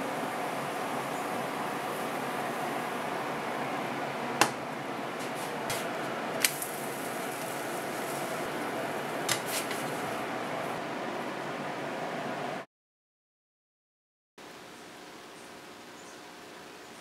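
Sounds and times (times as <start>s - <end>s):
steady hiss: 0.0s - 12.6s
faint hum: 0.0s - 12.7s.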